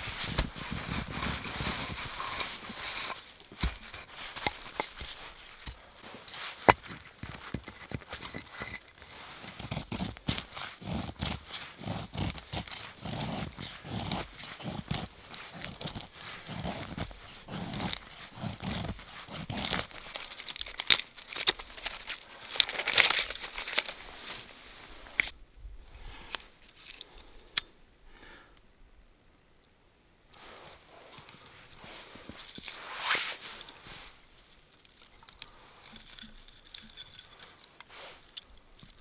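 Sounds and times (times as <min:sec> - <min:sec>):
snow crunching: 0:00.0 - 0:20.9, 0:30.4 - 0:34.5
dry twigs crackling: 0:00.0 - 0:25.4, 0:30.4 - 0:39.0.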